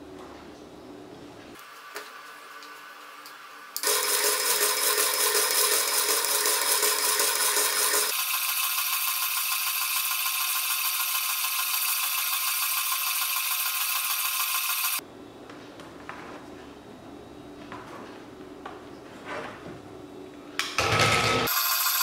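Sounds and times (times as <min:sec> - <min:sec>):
stepper motor whining and rattling: 0:21.5 - 0:22.0.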